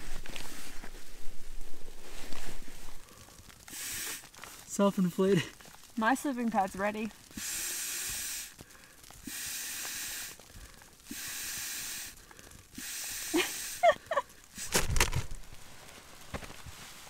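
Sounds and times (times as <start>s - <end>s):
breaths blowing into a valve: 3.7s - 4.3s, 7.3s - 8.6s, 9.2s - 10.4s, 11.0s - 12.2s, 12.8s - 13.8s
handling knocks and rustles: 14.6s - 17.0s.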